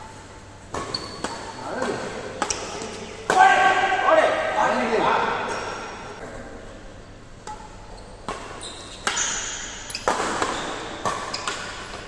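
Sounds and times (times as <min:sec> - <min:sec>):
shoes squeaking on court: 0:00.0 - 0:03.3, 0:07.7 - 0:12.0
rackets hitting shuttlecock: 0:00.7 - 0:04.0, 0:07.4 - 0:12.0.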